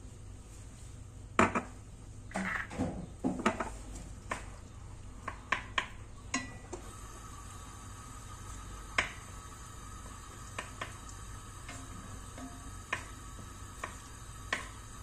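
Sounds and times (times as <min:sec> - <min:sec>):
kitchenware clinking: 0:06.3 - 0:06.8.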